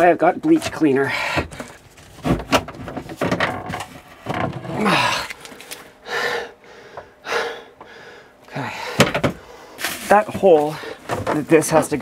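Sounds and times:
knocks and clatters: 1.5 - 4.8
gloves rustling: 5.0 - 6.0.

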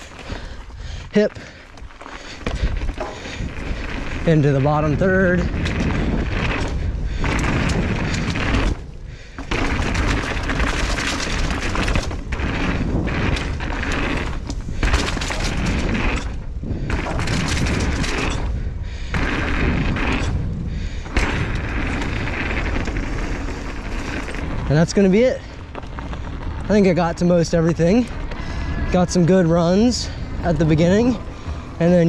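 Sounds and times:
bike rattling: 0.0 - 32.0
tyres on dirt: 0.0 - 32.0
wind on microphone: 2.4 - 9.0.

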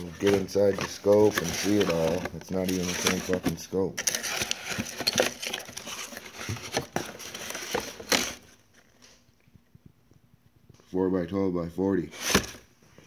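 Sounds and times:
cardboard rustling and crinkling: 0.0 - 9.3, 12.0 - 13.0.

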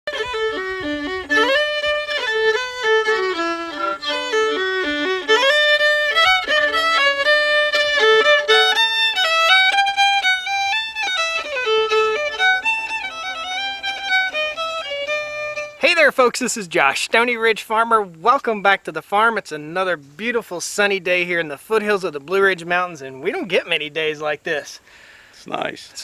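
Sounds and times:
solo fiddle tune: 0.1 - 25.4.

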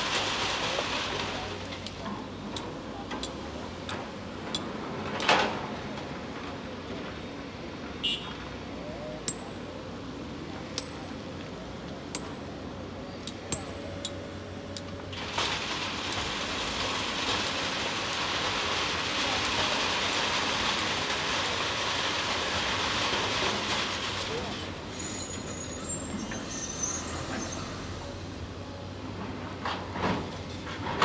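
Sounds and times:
gravel pouring into truck: 0.0 - 1.6, 15.1 - 27.1.

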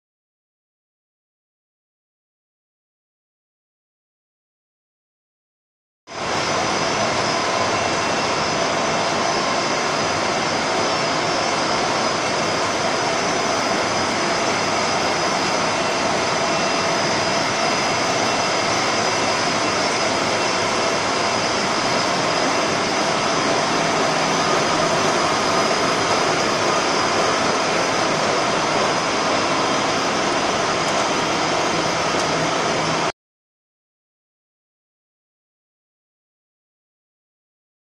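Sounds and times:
machine hum and whine: 6.1 - 33.1.

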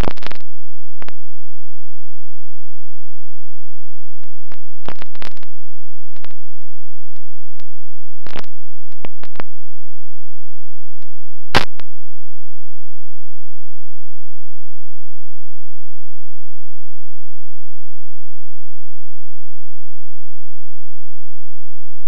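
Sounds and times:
short clicks and crackles: 0.0 - 1.2, 4.2 - 5.5, 6.1 - 10.0, 11.0 - 11.9.

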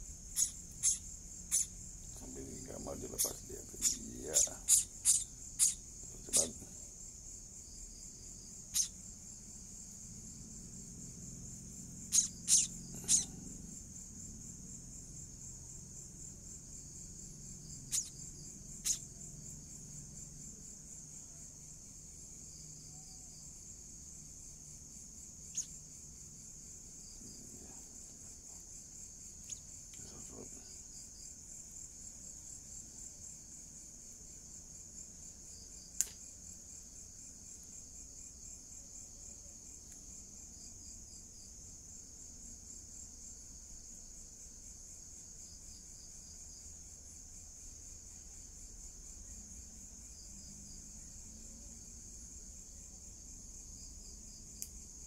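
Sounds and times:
crickets chirring: 0.0 - 55.0.

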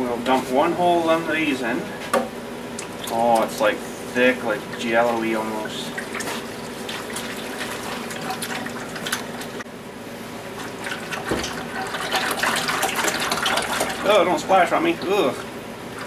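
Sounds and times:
liquid pouring into plastic bucket: 5.8 - 9.6, 10.5 - 16.0.

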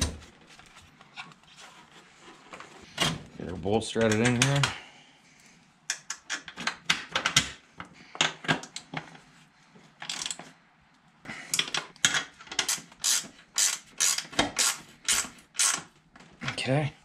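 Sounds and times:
hand ratchet clicking: 12.6 - 15.9.

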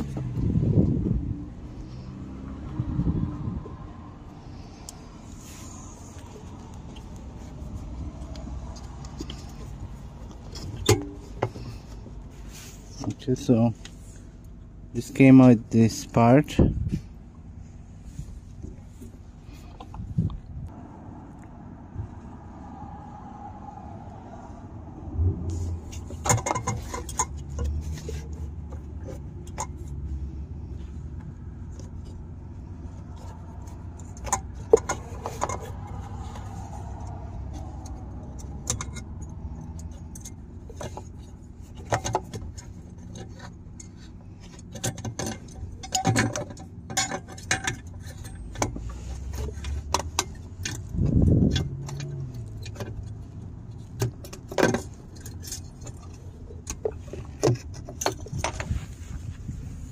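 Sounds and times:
low steady rumble: 0.0 - 59.9
small metallic clicks and rattles: 25.8 - 32.3, 32.9 - 58.7.

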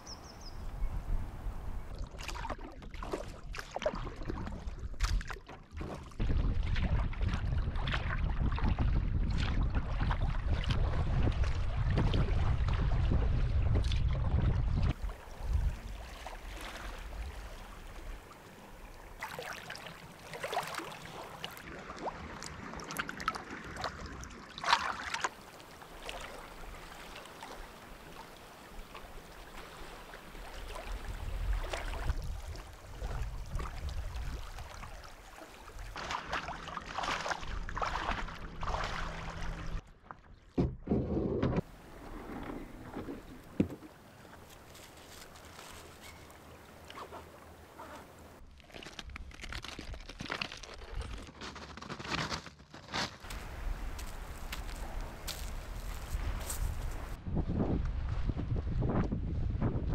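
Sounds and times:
wind rumbling on microphone: 0.0 - 2.0, 6.1 - 18.9, 28.9 - 36.0, 53.3 - 59.9
paddle blades splashing in water: 1.9 - 39.8, 40.5 - 52.3, 52.9 - 57.2.

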